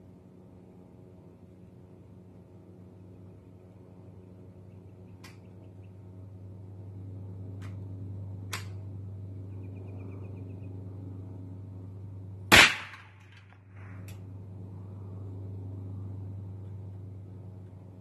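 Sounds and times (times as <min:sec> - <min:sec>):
rifle shot crack: 0:12.5 - 0:13.4
faint sharp cracks: 0:12.5 - 0:14.2.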